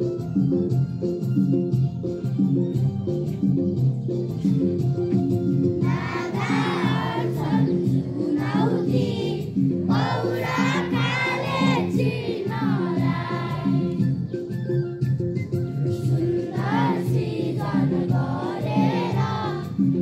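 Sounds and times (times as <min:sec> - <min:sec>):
instrumental music: 0:00.0 - 0:20.0
children singing together: 0:05.8 - 0:14.0, 0:16.1 - 0:20.0.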